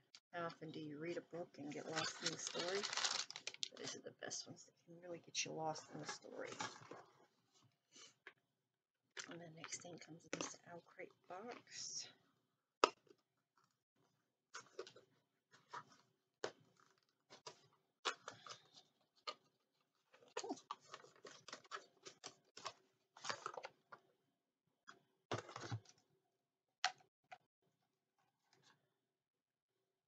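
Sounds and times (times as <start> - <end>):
packaging rustling: 1.8 - 3.8.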